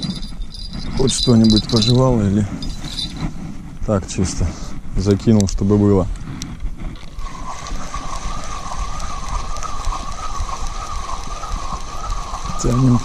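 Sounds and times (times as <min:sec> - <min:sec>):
fishing reel cranking whine: 0:00.0 - 0:03.3.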